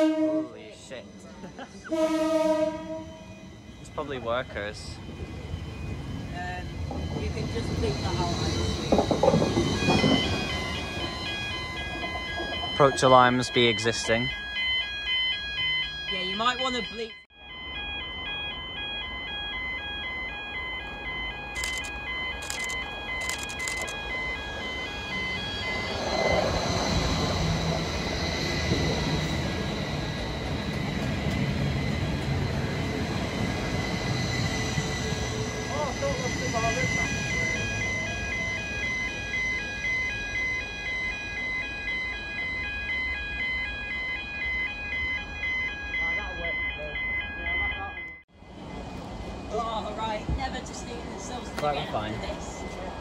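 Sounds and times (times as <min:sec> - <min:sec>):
high beeping warning alarm: 0:00.0 - 0:48.3
electric train approaching: 0:00.0 - 0:53.0.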